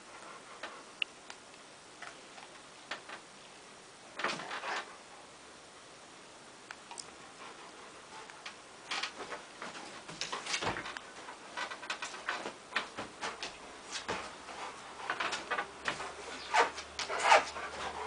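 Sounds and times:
dog paws scrabbling and scratching: 4.2 - 5.0, 7.2 - 18.0.

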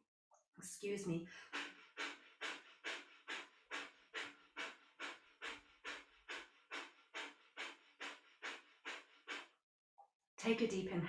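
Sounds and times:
rapid forceful nasal exhales: 1.3 - 9.6.

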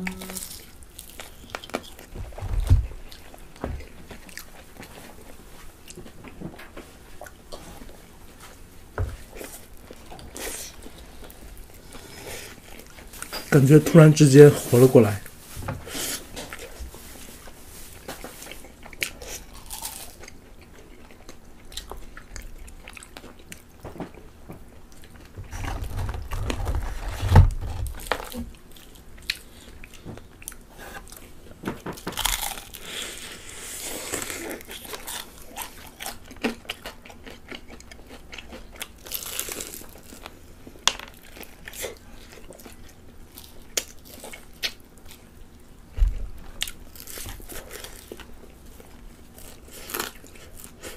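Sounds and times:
crunching fried chicken: 17.9 - 27.1, 32.0 - 45.3, 46.6 - 50.9.

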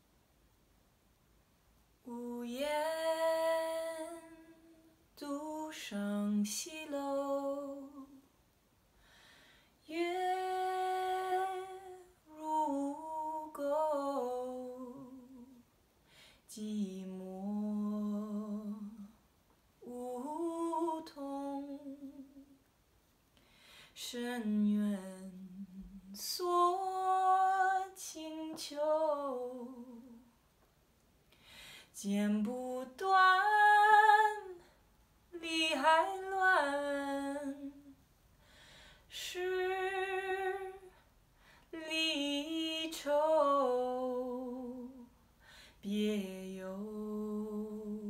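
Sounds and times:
woman singing unaccompanied: 2.0 - 8.2, 9.8 - 15.6, 16.5 - 19.2, 19.8 - 22.6, 24.0 - 30.3, 31.9 - 38.0, 39.1 - 41.0, 41.7 - 45.1, 45.8 - 48.0.

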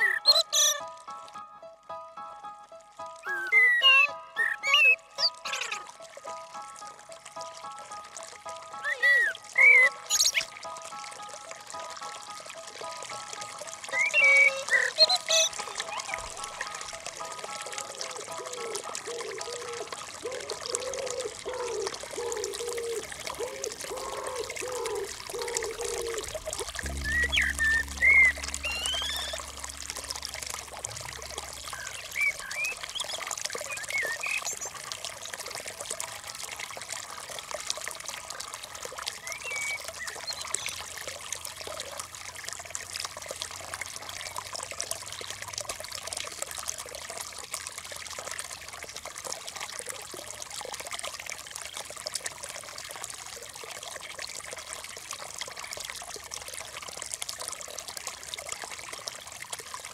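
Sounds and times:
water trickling and pouring: 0.0 - 1.5, 2.6 - 59.9
low hum: 26.3 - 32.6
short rising chirps: 26.8 - 33.1.

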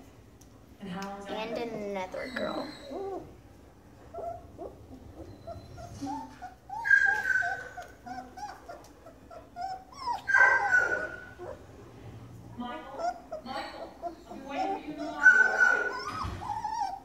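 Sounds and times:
puppies whimpering: 1.3 - 11.7, 12.8 - 17.0
puppy high-pitched cry: 1.6 - 3.4, 4.1 - 11.6, 12.9 - 17.0.

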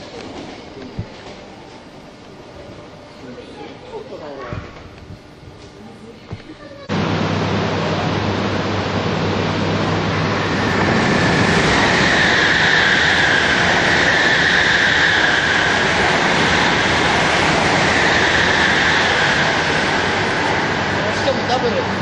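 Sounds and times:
high-speed train passing: 6.9 - 22.0.

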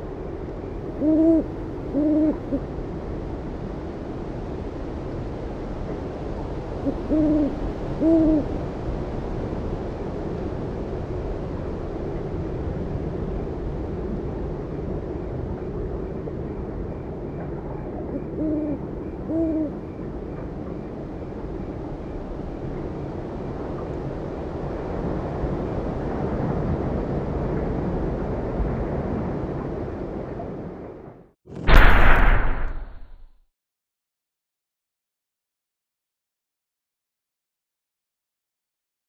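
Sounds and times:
owl hooting: 1.0 - 2.6, 6.8 - 8.6, 18.0 - 19.8.

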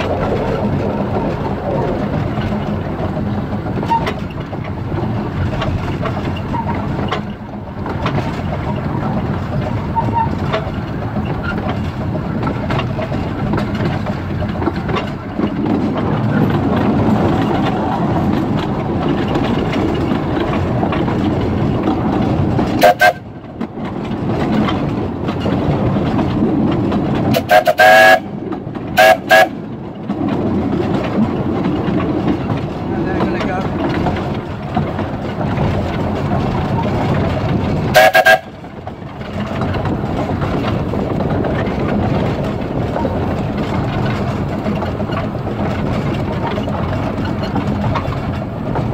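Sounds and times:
steam locomotive rumble: 0.0 - 48.9
steam whistle blasts: 27.4 - 28.2, 38.0 - 38.4.

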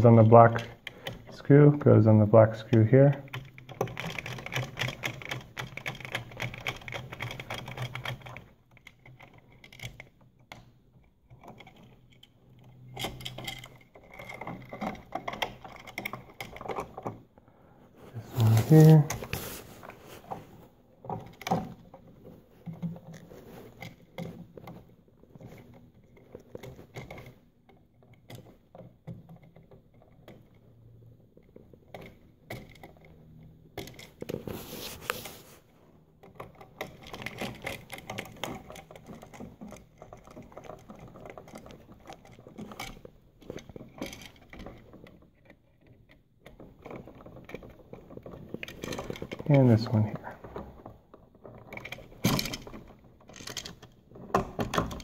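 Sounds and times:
handling rustle: 17.8 - 27.6, 33.9 - 55.0.

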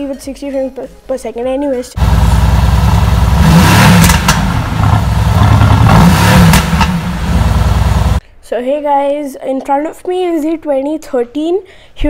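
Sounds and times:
exhaust cracks: 2.0 - 8.2
sports car engine revving: 2.0 - 8.2.

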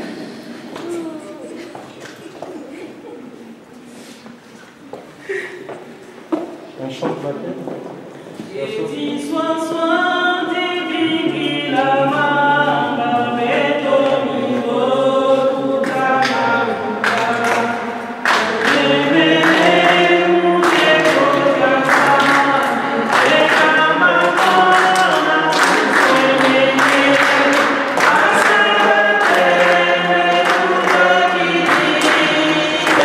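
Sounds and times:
congregation singing a hymn: 8.4 - 33.0
rhythmic hand-clapping: 12.6 - 33.0.

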